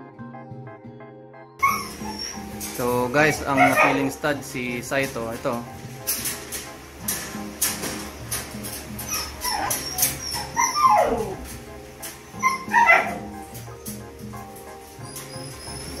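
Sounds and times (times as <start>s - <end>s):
background music: 0.0s - 16.0s
husky whining and yipping: 1.6s - 4.2s, 7.7s - 16.0s.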